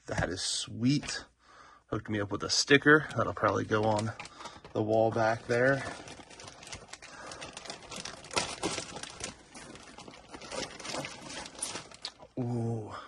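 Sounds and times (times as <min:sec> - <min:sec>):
packing material rustling: 0:02.6 - 0:12.4.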